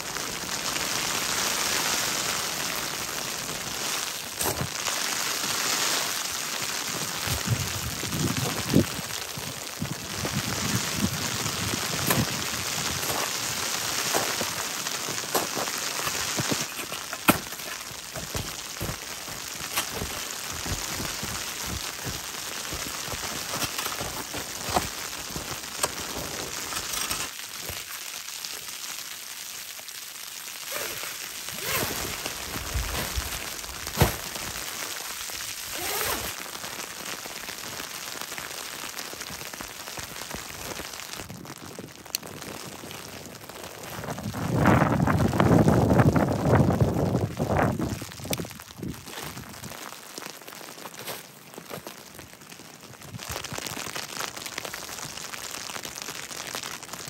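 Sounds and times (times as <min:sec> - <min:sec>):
boots crunching in snow: 0:03.8 - 0:06.2, 0:07.0 - 0:27.9, 0:30.7 - 0:35.0, 0:35.7 - 0:36.4, 0:48.4 - 0:52.1
shovel scraping packed snow: 0:11.0 - 0:27.8, 0:30.7 - 0:34.6, 0:35.7 - 0:36.3.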